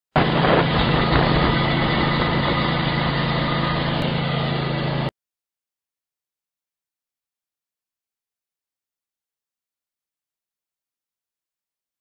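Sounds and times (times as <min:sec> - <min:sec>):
small petrol engine running: 0:00.2 - 0:05.1.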